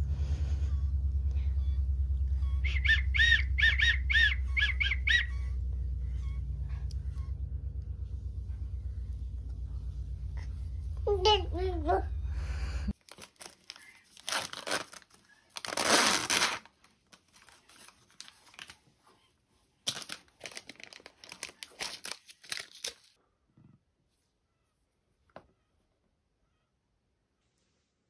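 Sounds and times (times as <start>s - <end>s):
low hum: 0.0s - 16.5s
wrapper tearing: 13.0s - 18.9s, 19.8s - 23.2s
wrappers crinkling: 13.0s - 19.0s, 19.8s - 23.2s.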